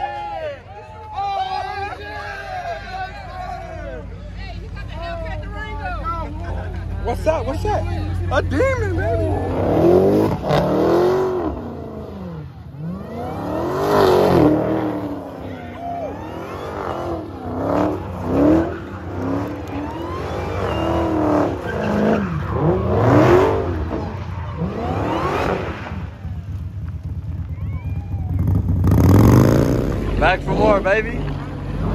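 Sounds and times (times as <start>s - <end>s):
car engine revving: 5.1s - 27.5s, 28.2s - 31.9s
tyres squealing: 14.4s - 25.3s.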